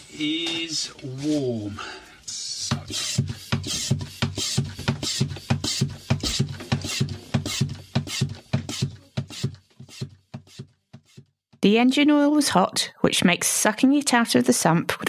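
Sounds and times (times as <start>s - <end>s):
hand vacuum pump strokes: 2.6s - 11.3s.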